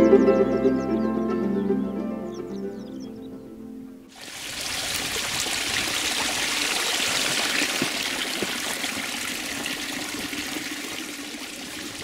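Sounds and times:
meltwater trickling: 0:04.1 - 0:12.0
water dripping: 0:04.1 - 0:12.0.

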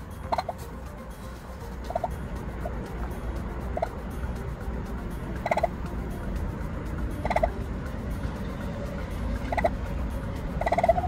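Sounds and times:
steady low rumble: 0:00.0 - 0:11.0
turkey calling: 0:00.3 - 0:00.7, 0:01.3 - 0:02.9, 0:03.7 - 0:04.0, 0:05.4 - 0:05.8, 0:07.2 - 0:07.6, 0:09.4 - 0:09.8, 0:10.5 - 0:11.0.

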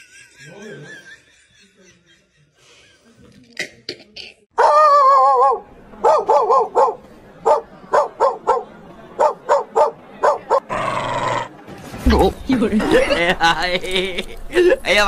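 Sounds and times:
dog barking: 0:04.6 - 0:10.7.

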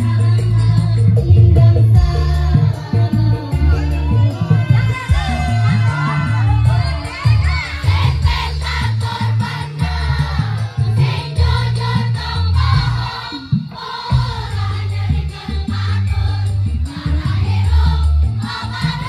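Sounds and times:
group singing: 0:00.0 - 0:19.0
heavy bass beat: 0:00.0 - 0:19.0.

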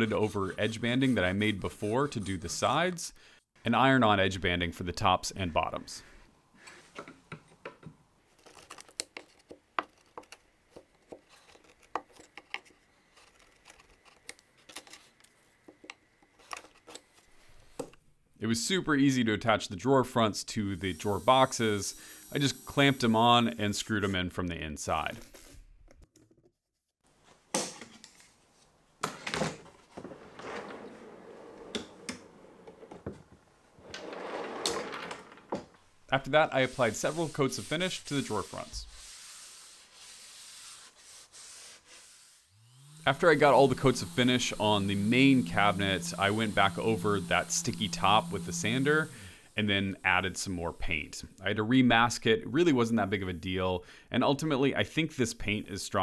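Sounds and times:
drawer rolling on slides: 0:29.9 - 0:33.2, 0:33.8 - 0:35.8.

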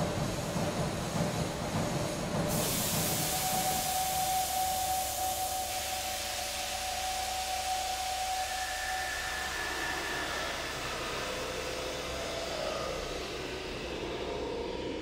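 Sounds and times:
steady high hum: 0:02.2 - 0:15.0
steam iron hissing: 0:02.5 - 0:11.5.

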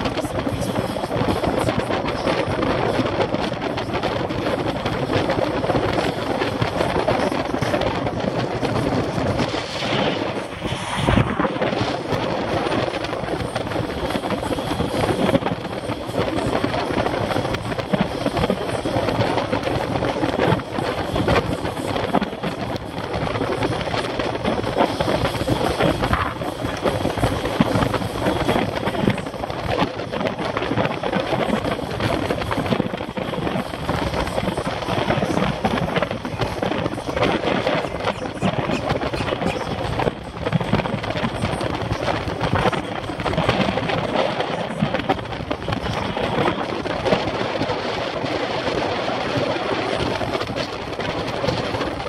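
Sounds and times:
tyre and road noise: 0:00.0 - 0:52.0
wind buffeting microphone: 0:00.0 - 0:52.0.

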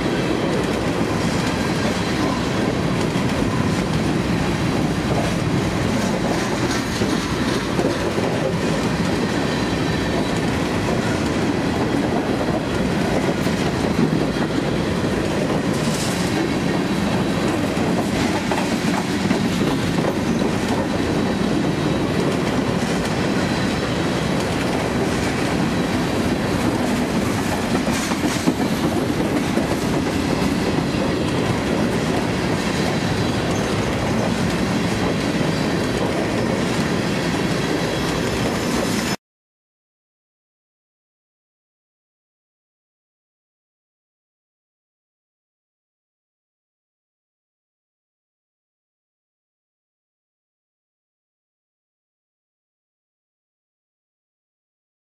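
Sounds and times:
freight train wheels on rails: 0:00.0 - 0:39.2.

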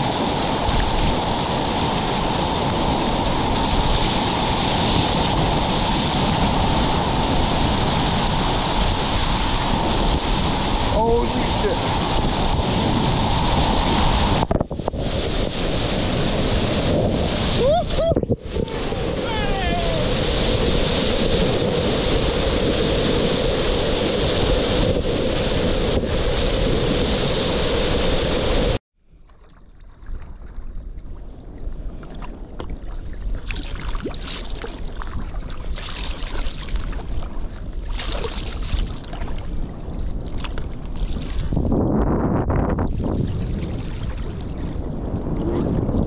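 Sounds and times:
whitewater rushing: 0:17.4 - 0:20.3
small water splashes: 0:29.2 - 0:41.6, 0:42.9 - 0:44.8.

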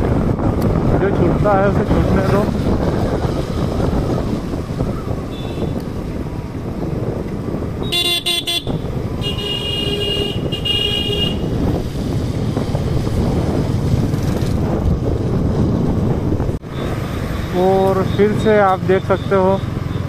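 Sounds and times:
motorcycle engine rumble: 0:00.0 - 0:20.0
wind: 0:00.0 - 0:20.0
vehicle horn honking: 0:05.3 - 0:05.8, 0:07.8 - 0:11.5.

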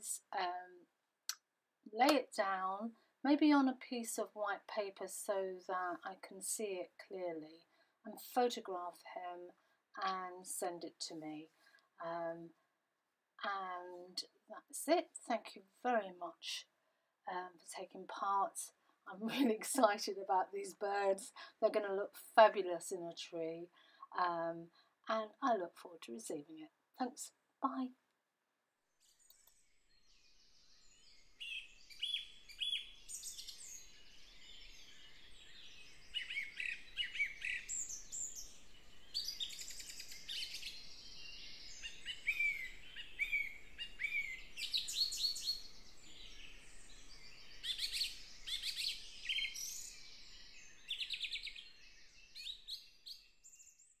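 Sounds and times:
songbirds singing: 0:29.0 - 0:54.0.

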